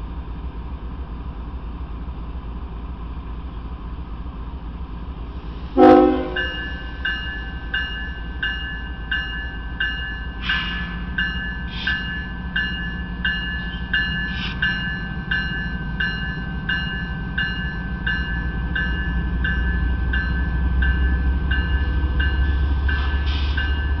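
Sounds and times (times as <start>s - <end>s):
diesel locomotive rumble: 0.0s - 24.0s
railroad bell dinging: 5.8s - 24.0s.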